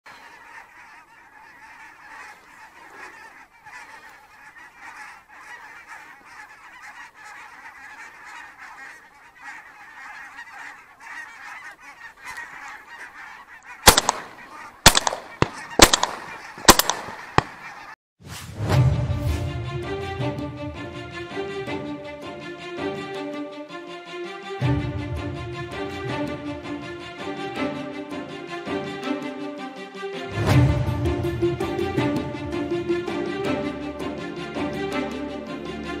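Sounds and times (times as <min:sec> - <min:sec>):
flock of geese honking: 0:00.1 - 0:18.0
shotgun shots: 0:13.8 - 0:17.7.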